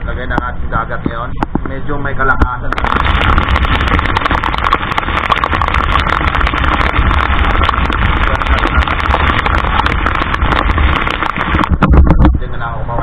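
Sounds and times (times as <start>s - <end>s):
rain pelting deck: 2.7s - 12.0s
wind buffeting microphone: 2.8s - 12.6s.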